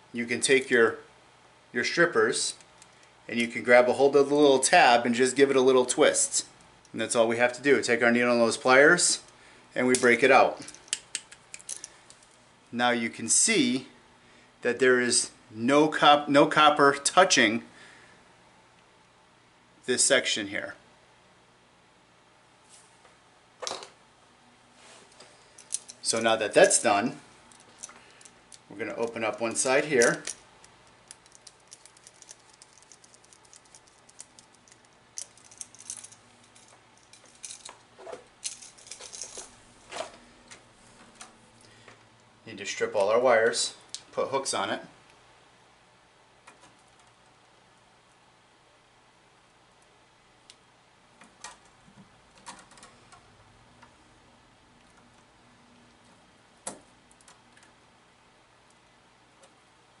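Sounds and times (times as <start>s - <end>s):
wire strippers clicking and snipping: 9.9s - 12.4s, 27.5s - 41.4s, 51.2s - 53.9s, 56.6s - 57.8s.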